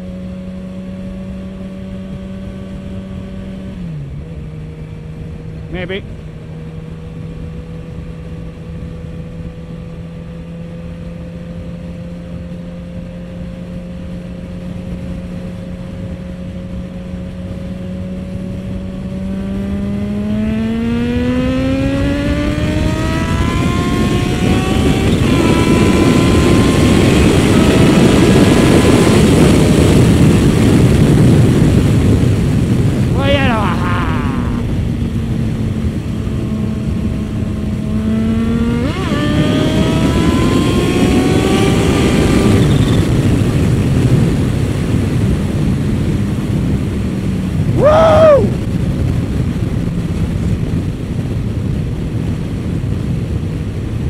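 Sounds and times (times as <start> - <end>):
motorcycle engine revving: 0.0 - 54.0
wind rushing: 18.2 - 54.0.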